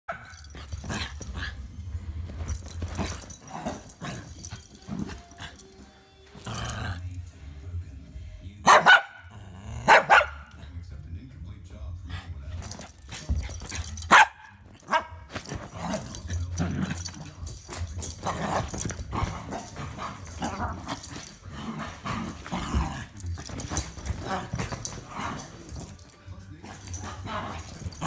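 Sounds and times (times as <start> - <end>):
dog barking: 0.1 - 0.4, 8.6 - 10.5, 14.0 - 15.1.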